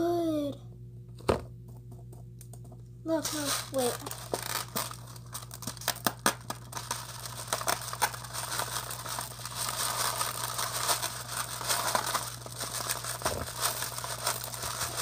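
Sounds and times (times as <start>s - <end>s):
plastic beads rattling and spilling: 3.2s - 15.0s.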